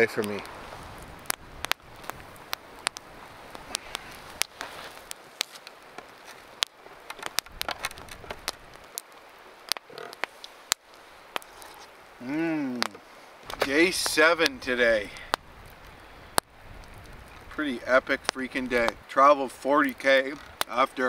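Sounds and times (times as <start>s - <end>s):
campfire crackling: 0.0s - 21.0s.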